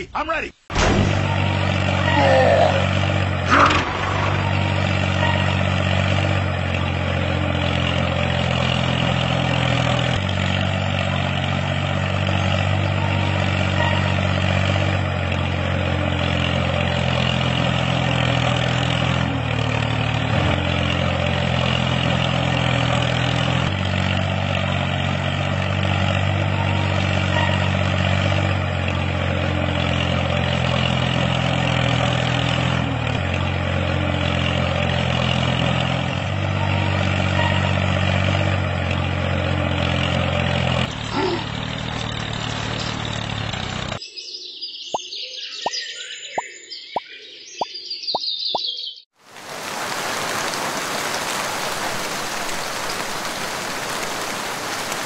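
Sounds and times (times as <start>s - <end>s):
tractor engine idling: 0.7s - 44.0s.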